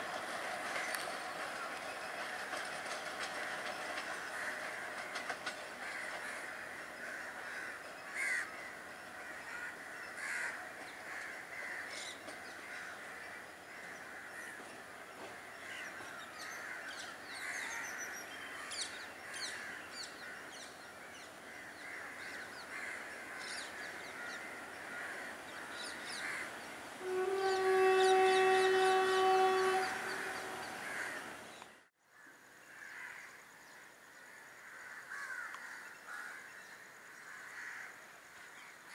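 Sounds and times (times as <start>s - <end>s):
crows cawing: 5.8s - 14.7s, 21.5s - 26.5s, 30.8s - 31.2s, 32.7s - 33.3s, 34.2s - 36.5s, 37.3s - 37.9s.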